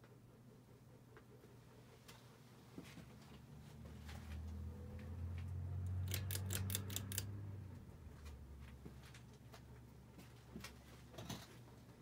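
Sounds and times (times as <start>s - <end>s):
ceiling fan pull chain clicks: 5.8s - 7.4s.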